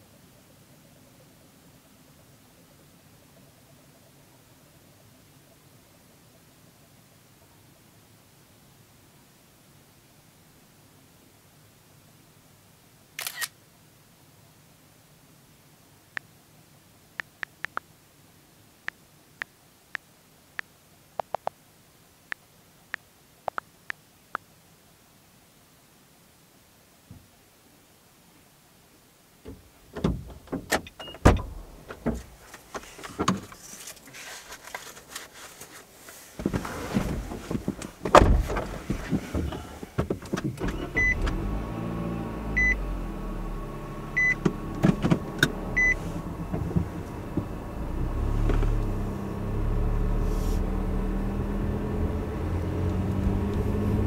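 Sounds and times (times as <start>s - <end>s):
road noise: 29.4s - 54.0s
car door shutting: 29.5s - 33.6s, 36.4s - 41.6s, 44.1s - 49.2s
knocks and rustling: 29.5s - 40.6s
car engine running: 40.6s - 54.0s.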